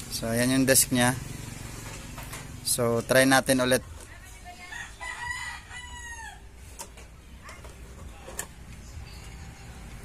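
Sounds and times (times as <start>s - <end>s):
rooster crowing: 4.6s - 6.6s.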